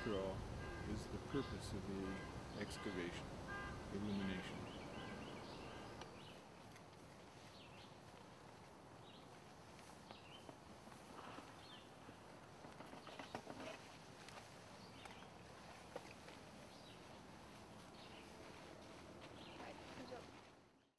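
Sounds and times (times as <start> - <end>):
rustling in dry leaves: 4.4 - 20.7.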